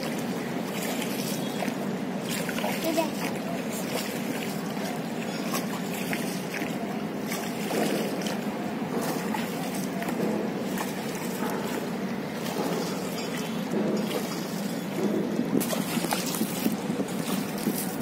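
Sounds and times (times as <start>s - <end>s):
river water around a rowboat: 0.0s - 18.0s.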